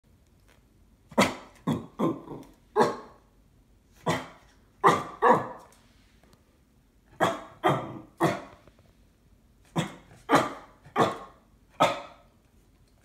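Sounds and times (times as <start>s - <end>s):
dog barking: 1.1s - 3.2s, 4.0s - 5.7s, 7.2s - 8.6s, 9.7s - 12.3s.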